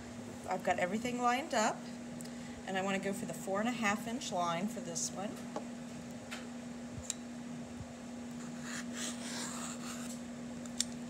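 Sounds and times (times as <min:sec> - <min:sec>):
steady low hum: 0:00.0 - 0:11.0
rotary cutter rasping through fabric: 0:08.4 - 0:10.2.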